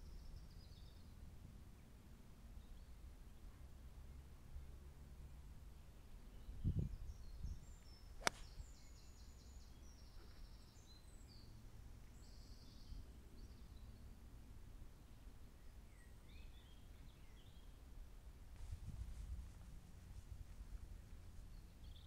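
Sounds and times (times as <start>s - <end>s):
golf club striking ball: 8.2s - 8.5s.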